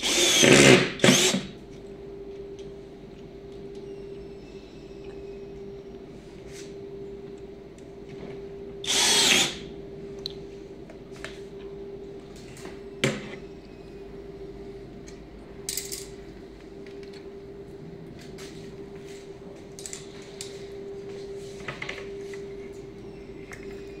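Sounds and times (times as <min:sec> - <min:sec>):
cordless drill driving a screw: 0:00.0 - 0:01.5, 0:08.8 - 0:09.6
steady hum: 0:00.0 - 0:24.0.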